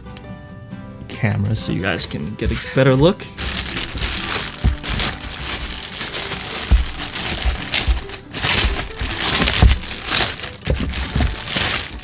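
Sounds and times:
low thumps: 3.4s - 12.0s
plastic bag crinkling: 3.4s - 12.0s.

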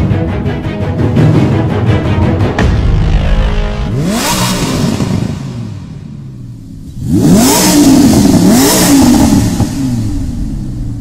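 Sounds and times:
sports car engine revving: 3.0s - 11.0s.

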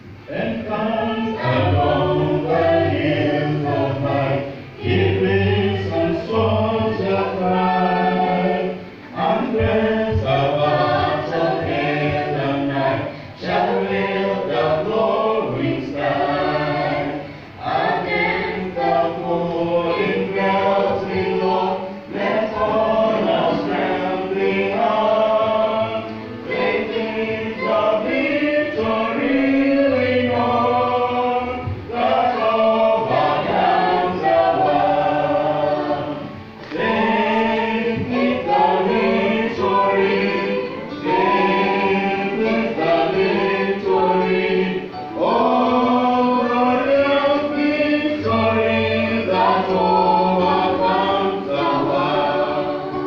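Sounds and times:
group singing gospel: 0.0s - 53.0s
singers breathing: 13.1s - 13.4s, 17.2s - 17.6s.

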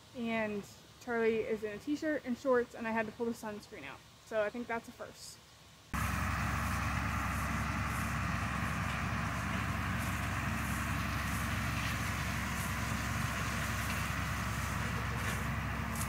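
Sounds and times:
tractor engine running: 6.0s - 16.0s.

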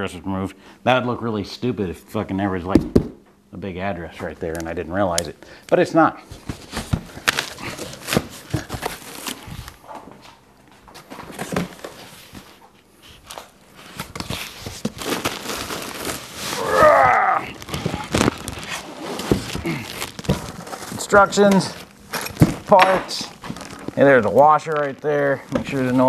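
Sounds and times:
packing material rustling: 6.3s - 9.8s, 11.1s - 26.0s.

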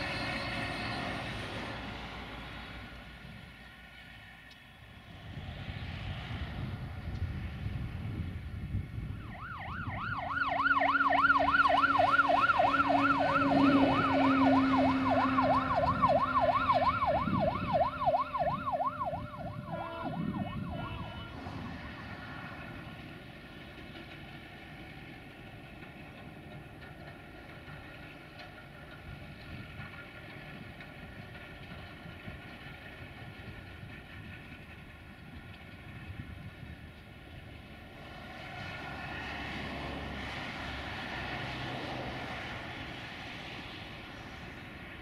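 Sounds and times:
fire engine siren yelp: 8.6s - 23.0s.

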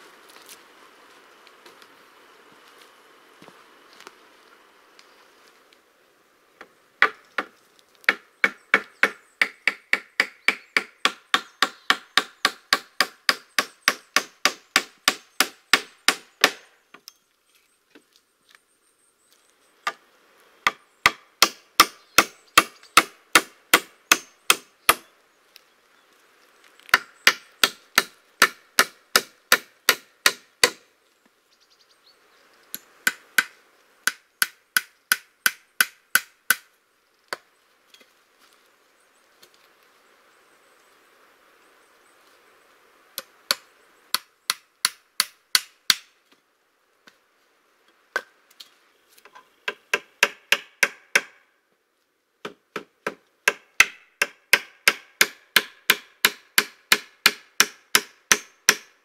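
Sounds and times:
hand tool striking wood: 26.9s - 30.8s, 43.5s - 46.1s, 49.7s - 51.4s, 52.4s - 58.9s.

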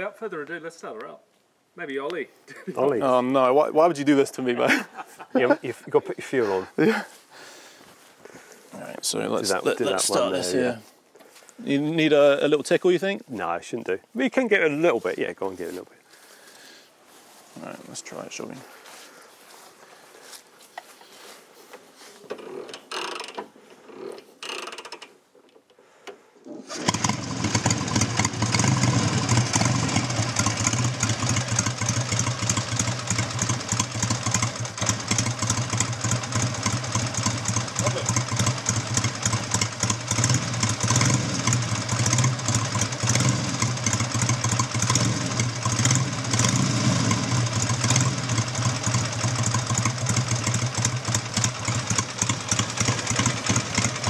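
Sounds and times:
motorcycle engine starting and idling: 26.6s - 54.0s.

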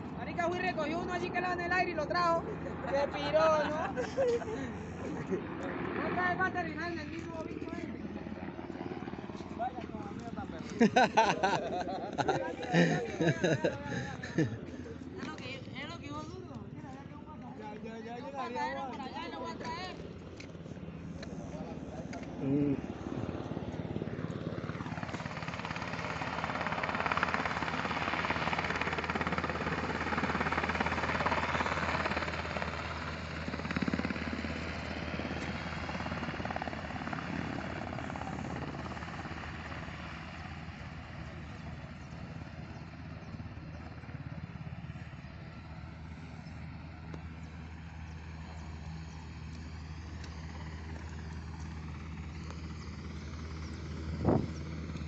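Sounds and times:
helicopter flying past: 0.0s - 55.0s.

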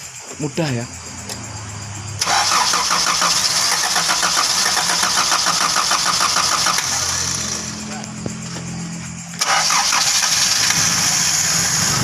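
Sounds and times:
low steady hum: 0.7s - 2.7s
engine cranking by starter: 0.9s - 12.0s.

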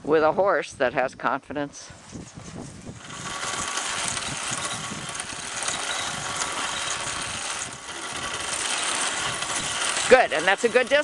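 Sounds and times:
atv engine running: 2.7s - 11.0s.

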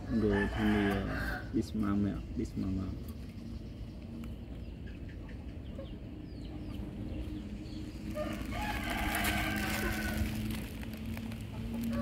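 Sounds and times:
rooster crowing: 0.1s - 1.5s, 8.1s - 10.6s.

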